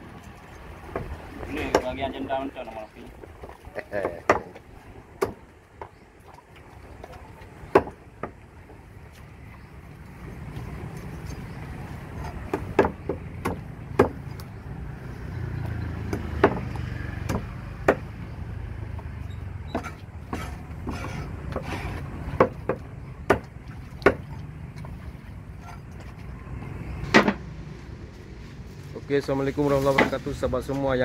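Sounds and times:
blade chopping fish on wood: 0:03.9 - 0:04.6, 0:05.2 - 0:06.0, 0:07.7 - 0:08.4, 0:12.2 - 0:14.3, 0:15.6 - 0:18.2, 0:19.7 - 0:24.9.

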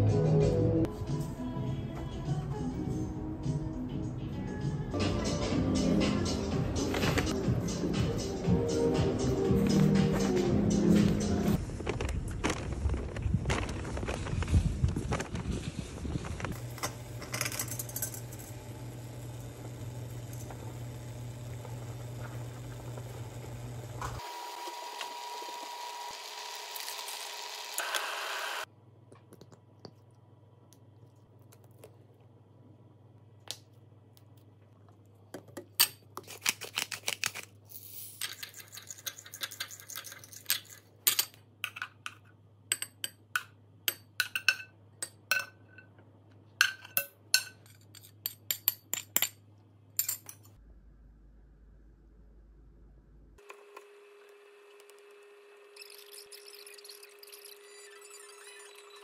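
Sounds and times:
utensils clinking on dishes: 0:38.2 - 0:46.0, 0:46.6 - 0:49.4.

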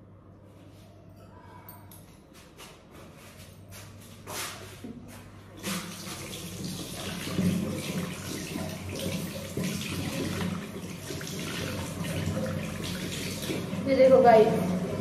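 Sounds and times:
water running from a tap: 0:05.6 - 0:15.0.

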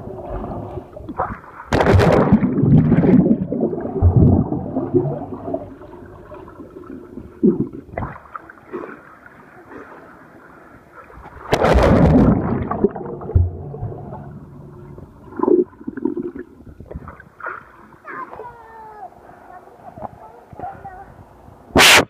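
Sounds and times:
bubbly bursts: 0:01.7 - 0:08.3, 0:11.5 - 0:16.6
rush of water: 0:11.0 - 0:19.4.

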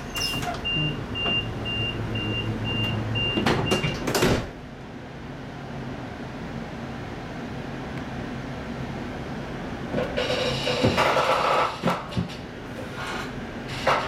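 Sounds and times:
train door sliding shut: 0:00.0 - 0:01.4, 0:02.8 - 0:04.6, 0:09.9 - 0:14.0
railway carriage rumble: 0:00.0 - 0:14.0
door warning beeps: 0:00.1 - 0:04.0.

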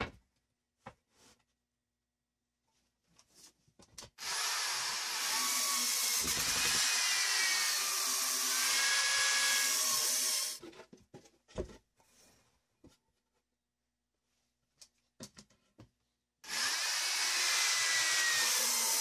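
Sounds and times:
electric drill whining into wood: 0:04.2 - 0:10.6, 0:16.4 - 0:19.0.

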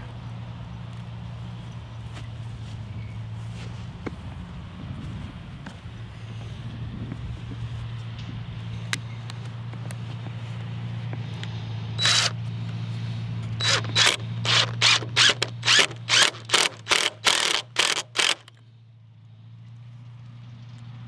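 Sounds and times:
impact driver driving screws: 0:12.0 - 0:12.4, 0:13.6 - 0:18.6.

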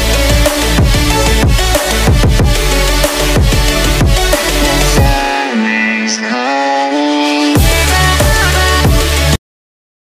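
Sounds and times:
electronic dance music: 0:00.0 - 0:09.4.

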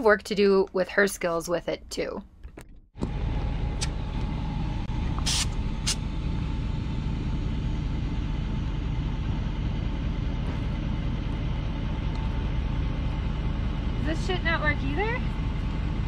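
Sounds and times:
short air hisses from valve: 0:05.2 - 0:06.0.

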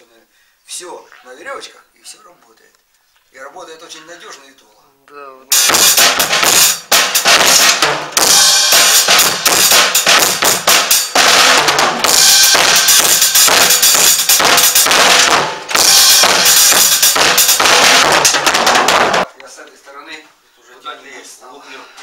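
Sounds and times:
cymbals crashing: 0:05.5 - 0:19.3
drum kit played fast: 0:05.5 - 0:19.3.

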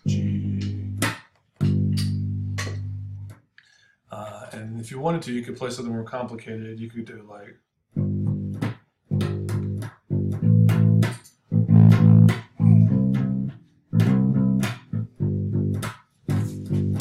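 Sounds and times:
electric bass guitar plucked: 0:00.0 - 0:03.3, 0:08.0 - 0:17.0.

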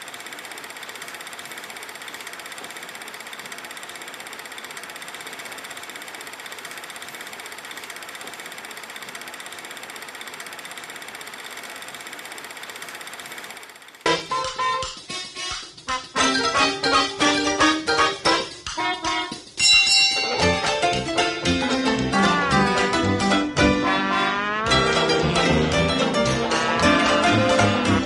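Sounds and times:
film projector clattering: 0:00.0 - 0:14.8.

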